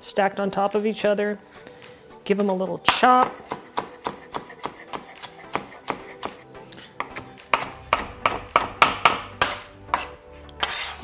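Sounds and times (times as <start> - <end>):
soft background music: 0.0 - 11.0
knife chopping on plastic board: 2.9 - 6.4, 7.0 - 11.0.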